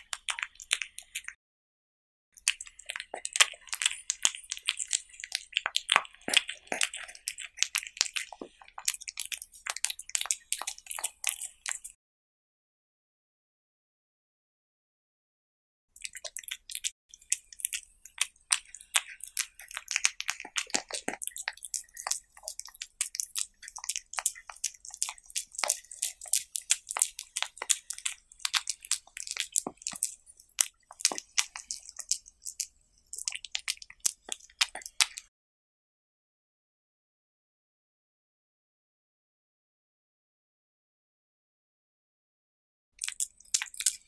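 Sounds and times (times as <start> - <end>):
cat chewing wetly: 0.0 - 1.4, 2.4 - 12.0, 16.0 - 35.3, 43.0 - 44.0.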